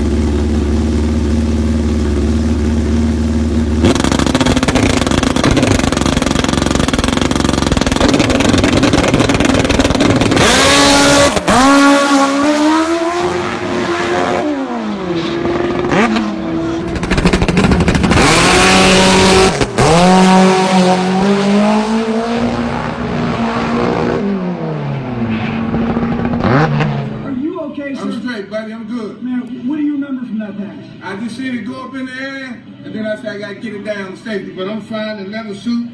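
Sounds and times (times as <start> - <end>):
motorcycle engines accelerating: 1.8 - 27.4.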